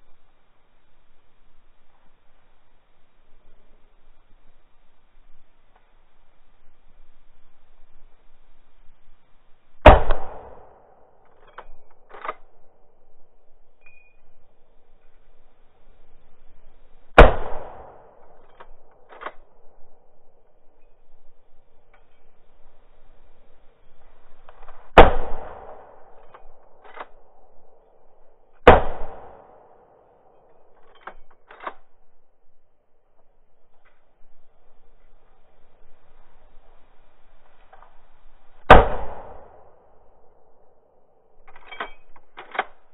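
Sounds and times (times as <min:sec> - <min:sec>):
rifle shot echoing: 0:09.8 - 0:12.9, 0:17.1 - 0:20.2, 0:24.6 - 0:30.4, 0:38.6 - 0:40.7
rifle action metallic clicks: 0:11.3 - 0:12.6, 0:18.1 - 0:19.6, 0:26.1 - 0:27.4, 0:30.5 - 0:32.0, 0:41.4 - 0:42.9.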